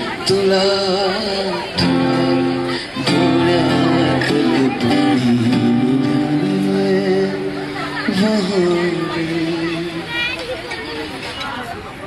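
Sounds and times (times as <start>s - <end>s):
man singing: 0.0s - 10.2s
acoustic guitar strummed: 0.0s - 10.4s.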